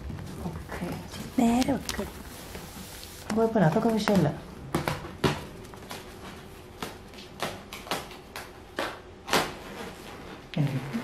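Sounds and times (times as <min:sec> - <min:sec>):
plastic cling wrap crackling: 0:00.0 - 0:04.4.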